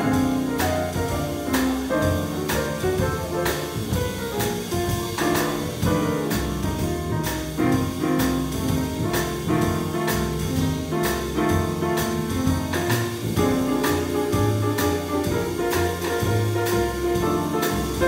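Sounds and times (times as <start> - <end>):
plucked upright bass: 0.0 - 18.0
stage keyboard: 0.0 - 18.0.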